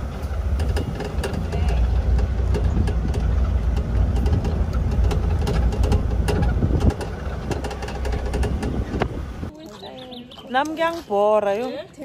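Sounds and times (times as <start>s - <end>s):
rattles and knocks: 0.0s - 9.5s
vehicle engine and road rumble: 0.0s - 12.0s.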